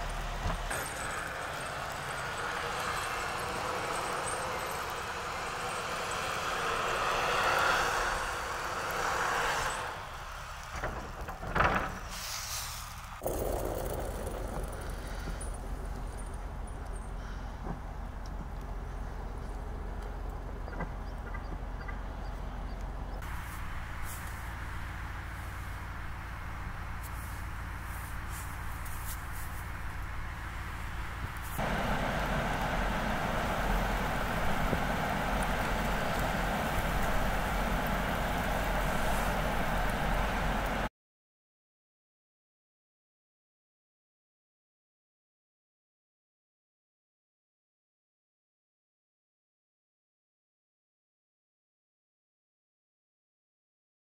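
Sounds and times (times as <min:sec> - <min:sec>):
heavy machine noise: 0:00.0 - 0:40.9
vehicle running: 0:00.0 - 0:40.9
wind buffeting microphone: 0:30.0 - 0:40.9.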